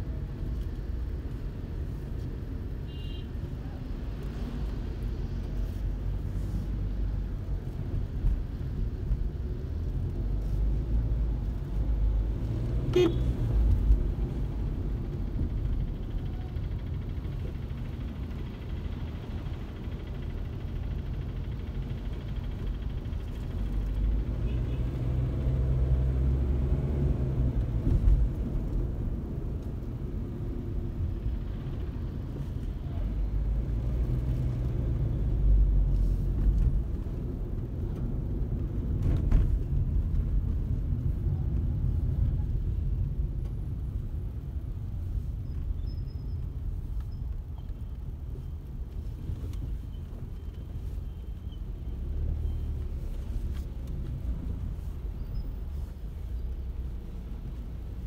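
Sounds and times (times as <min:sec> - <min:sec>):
car engine and tyres rumbling: 0:00.0 - 0:58.0.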